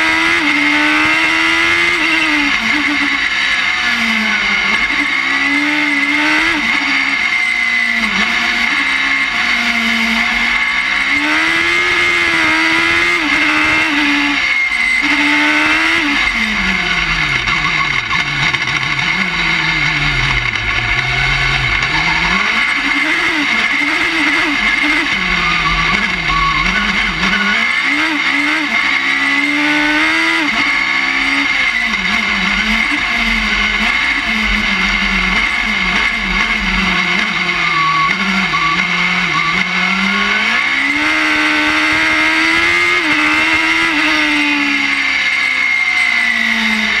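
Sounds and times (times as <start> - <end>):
motorcycle engine revving: 0.0 - 47.0
steady high whine: 16.1 - 27.6, 30.4 - 40.3.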